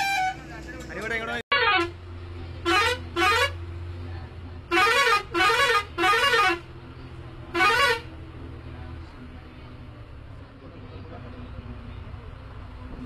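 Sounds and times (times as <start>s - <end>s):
melody air horn blasts: 0.0s - 0.5s, 4.7s - 6.6s, 7.6s - 8.1s
bus engine humming: 0.0s - 13.0s.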